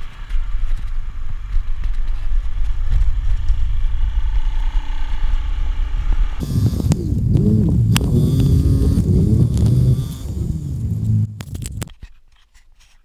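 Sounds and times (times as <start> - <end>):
wind rumble on microphone: 0.0 - 11.9
scooter engine drone: 3.5 - 11.9.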